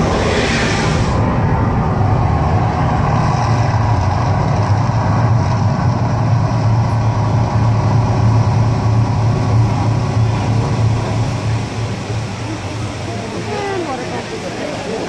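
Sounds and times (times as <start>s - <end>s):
loud low rumble: 0.0s - 14.6s
even rushing noise: 0.0s - 15.0s.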